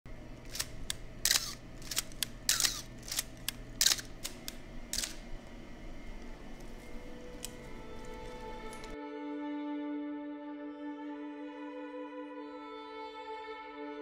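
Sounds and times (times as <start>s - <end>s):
camera mechanical clicks: 0.3s - 9.0s
film advance lever winding: 0.4s - 5.4s, 6.5s - 9.0s
camera shutter firing: 0.4s - 5.5s, 6.1s - 9.0s.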